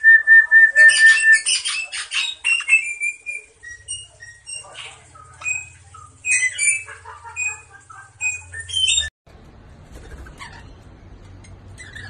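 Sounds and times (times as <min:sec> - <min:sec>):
birds chirping and squawking: 0:00.8 - 0:09.1, 0:09.9 - 0:12.0.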